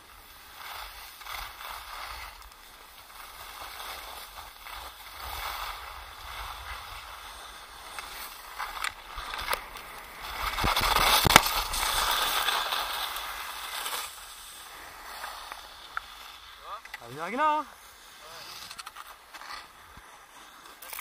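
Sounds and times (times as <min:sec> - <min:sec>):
skis scraping over snow: 0:00.0 - 0:21.0.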